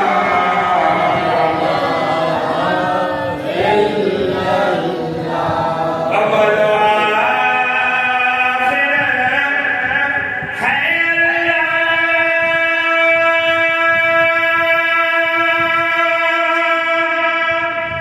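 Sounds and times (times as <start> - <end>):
man chanting unaccompanied: 0.0 - 18.0.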